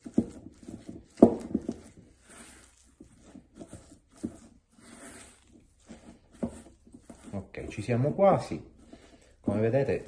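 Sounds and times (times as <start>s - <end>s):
spatula knocking bowl: 0.0s - 2.0s
spatula scraping sticky dough: 0.0s - 10.0s.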